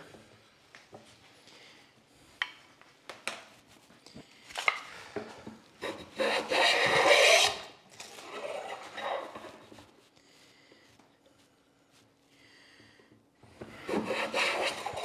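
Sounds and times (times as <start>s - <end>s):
hand plane rasping through wood: 5.8s - 9.6s, 13.8s - 15.0s.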